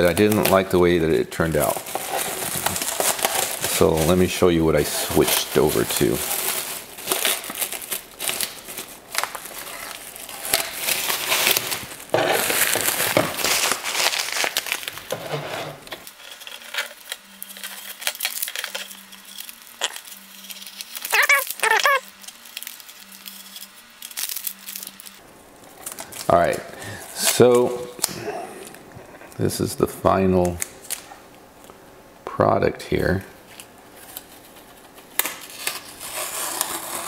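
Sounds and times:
plastic wrap and tape crinkling: 0:00.0 - 0:29.6, 0:30.4 - 0:31.7, 0:33.4 - 0:37.0
short squeaks: 0:19.8 - 0:22.1.

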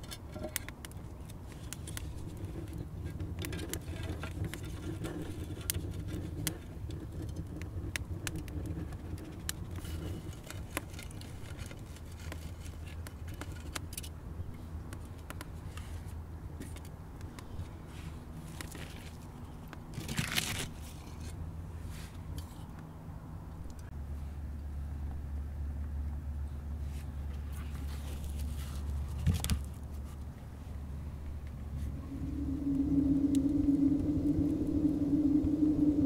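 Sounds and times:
wood fire crackling: 0:00.0 - 0:13.9.

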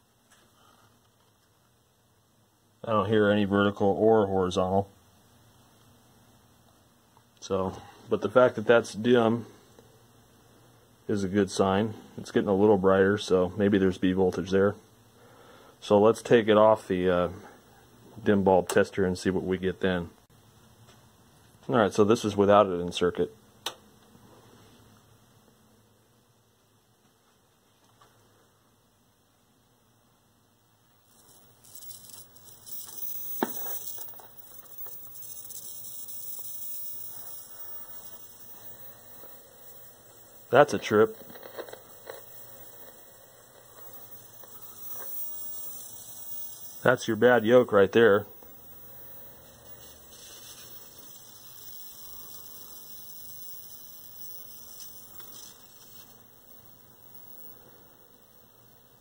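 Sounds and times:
television electrical hum: 0:30.8 - 0:59.0
high hissing crackle with sharp snaps: 0:30.9 - 0:59.0.

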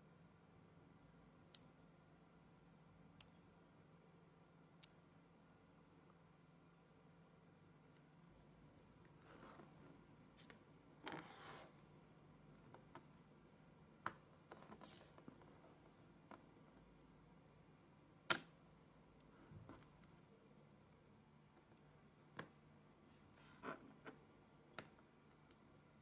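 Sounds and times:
rustling and scraping: 0:08.4 - 0:11.9.

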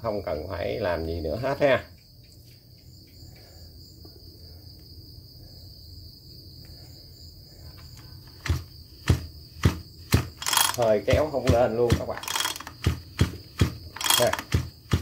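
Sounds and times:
sharp clicks of engine controls: 0:10.1 - 0:15.0.

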